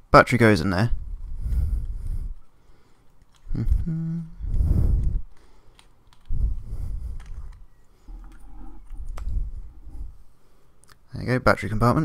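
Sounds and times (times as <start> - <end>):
small plastic clicks: 3.0 - 3.6, 4.5 - 6.4.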